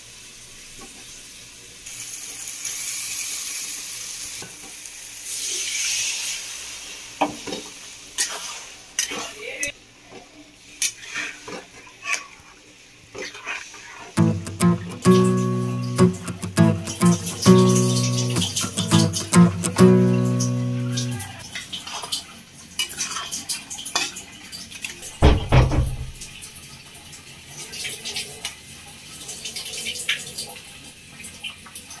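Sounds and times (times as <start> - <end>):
loud sizzle: 1.2 - 8.7, 14.2 - 21.5
loud thump: 25.2 - 26.2.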